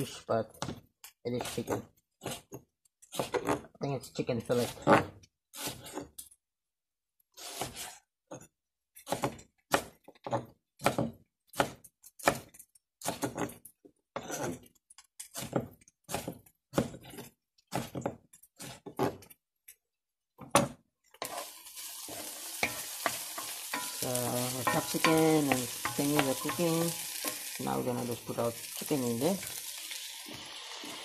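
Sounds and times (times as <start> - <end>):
knife chopping on wooden board: 1.4 - 3.7, 7.4 - 7.9, 9.0 - 13.6, 15.3 - 19.2, 22.6 - 27.4.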